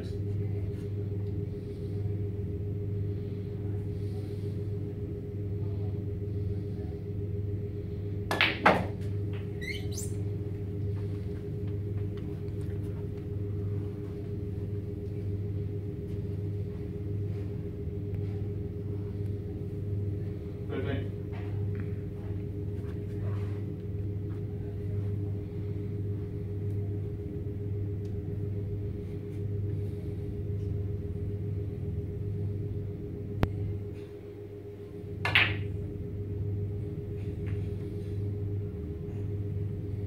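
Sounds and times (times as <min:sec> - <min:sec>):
low room hum: 0:00.0 - 0:40.0
brief rising squeak: 0:09.6 - 0:10.2.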